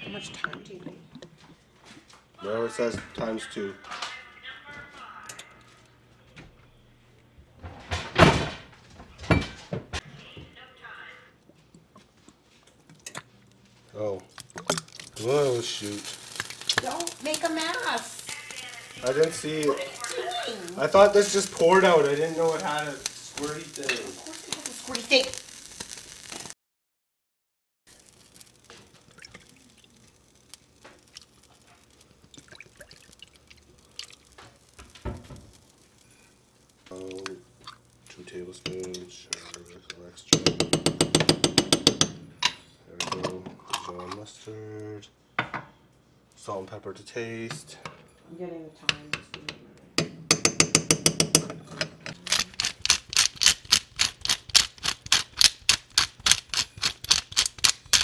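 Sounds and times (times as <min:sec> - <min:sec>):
liquid squirting into saucepan: 0:14.3 - 0:16.8, 0:29.0 - 0:34.4
soft drips: 0:29.0 - 0:34.8
pepper grinder clicking: 0:52.1 - 0:58.0.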